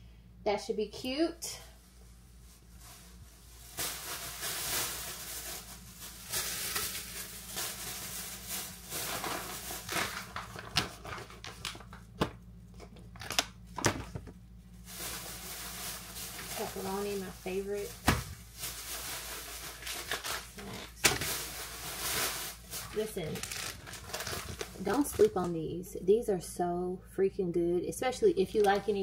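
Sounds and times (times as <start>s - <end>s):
plastic bag rustling: 1.8s - 25.7s, 28.3s - 29.0s
packages knocking on counter: 18.0s - 18.4s.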